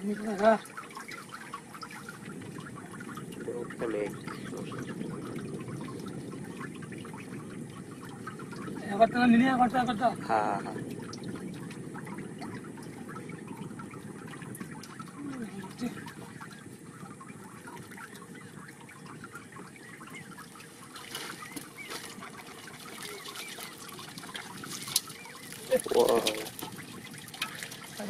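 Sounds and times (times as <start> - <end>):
water trickling and dripping: 0.0 - 28.0
fishing net being handled: 20.7 - 28.0.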